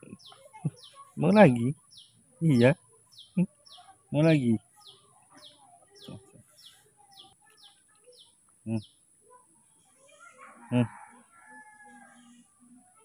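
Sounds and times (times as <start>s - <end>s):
small bird chirping: 0.0s - 10.8s
rooster crowing: 10.3s - 12.4s.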